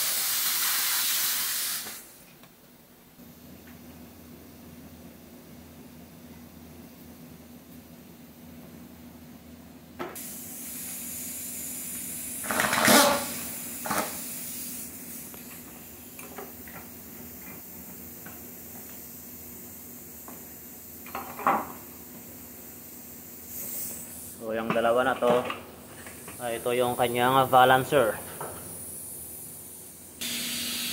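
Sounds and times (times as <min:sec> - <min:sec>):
steady hiss: 0:00.0 - 0:02.2, 0:10.2 - 0:30.9.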